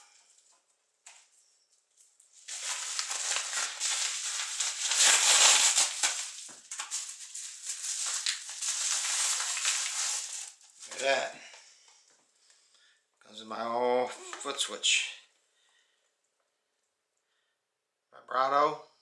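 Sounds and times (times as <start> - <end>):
paper mailer crinkling: 2.3 - 11.3.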